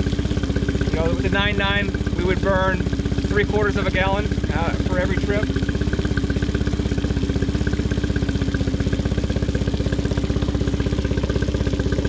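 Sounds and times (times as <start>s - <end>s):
outboard motor idling: 0.0s - 12.0s.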